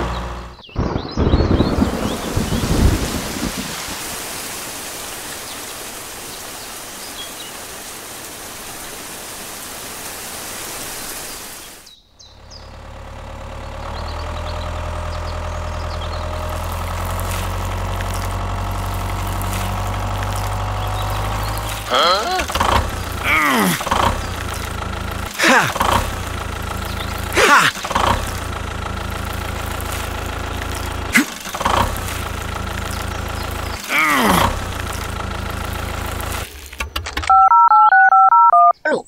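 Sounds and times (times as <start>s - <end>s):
small tractor engine running: 0.0s - 0.6s, 12.2s - 37.5s
steady rain: 0.8s - 12.0s, 12.8s - 37.0s.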